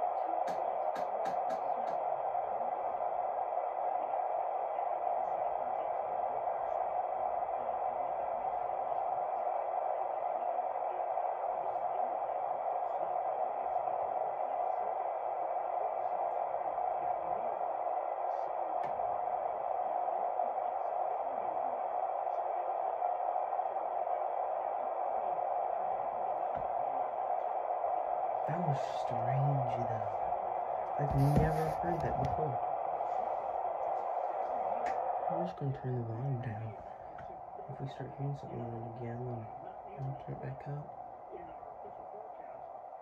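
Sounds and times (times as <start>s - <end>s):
radio static hiss: 28.4s - 33.0s.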